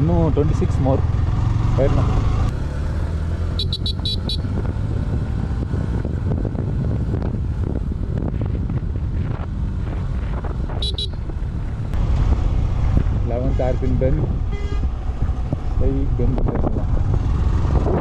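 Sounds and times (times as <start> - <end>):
motorcycle engine running: 0.0 - 13.6
short high-pitched beeps: 3.6 - 4.4, 10.8 - 11.2
wind buffeting microphone: 4.4 - 18.0.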